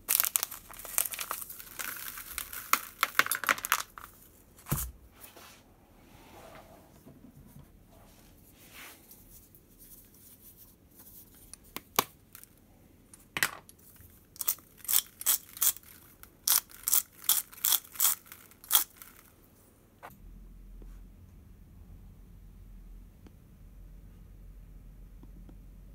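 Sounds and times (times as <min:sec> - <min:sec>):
spice grinder crunchy rasps: 0:14.4 - 0:19.3.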